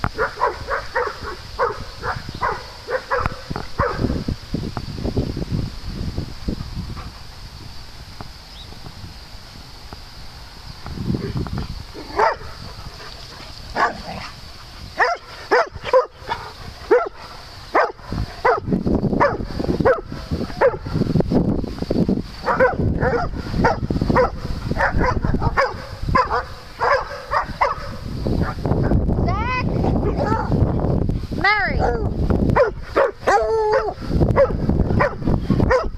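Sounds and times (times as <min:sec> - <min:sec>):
dogs barking: 0:00.1 - 0:04.2, 0:12.0 - 0:13.1, 0:13.7 - 0:14.3, 0:15.0 - 0:21.0, 0:22.4 - 0:28.6, 0:31.8 - 0:35.9.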